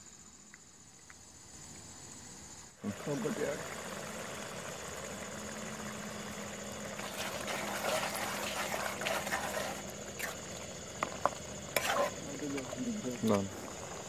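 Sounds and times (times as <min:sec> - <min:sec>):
curry bubbling in a pot: 0:02.8 - 0:14.0
ladle stirring with clicks: 0:06.9 - 0:14.0.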